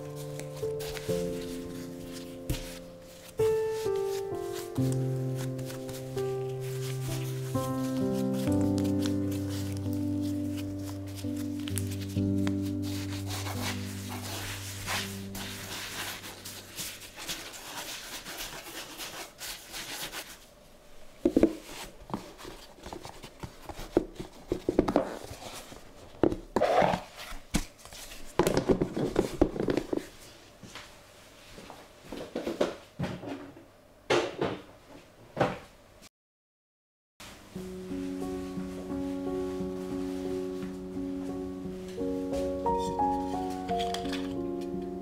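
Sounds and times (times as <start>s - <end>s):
hands working dough on stone: 0.1s - 20.4s.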